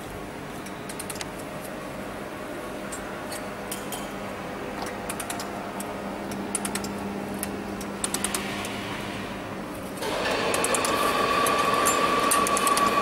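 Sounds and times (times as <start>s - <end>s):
welding machine humming: 10.0s - 13.0s.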